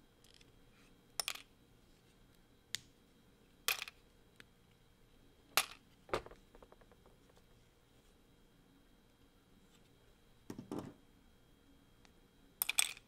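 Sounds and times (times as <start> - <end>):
plastic bricks clicking and snapping: 5.6 - 7.4.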